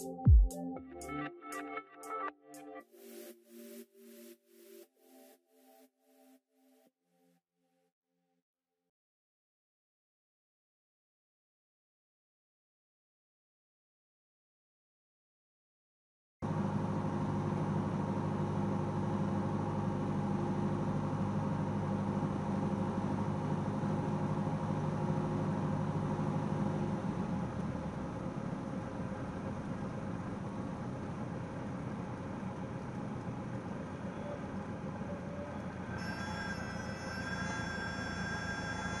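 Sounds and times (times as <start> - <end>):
wheels rolling on runway: 16.5 - 36.0
aircraft engine and propeller droning: 16.5 - 39.0.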